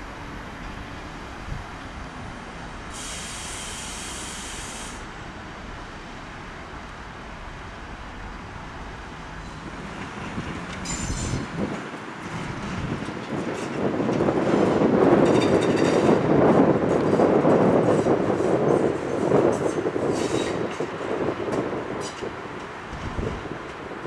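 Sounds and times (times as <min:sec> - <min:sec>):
electric train rumbling: 0:00.0 - 0:24.0
hiss of air: 0:02.8 - 0:05.3
rail squeals: 0:09.3 - 0:13.9, 0:14.5 - 0:16.3, 0:17.0 - 0:21.0, 0:22.0 - 0:22.4.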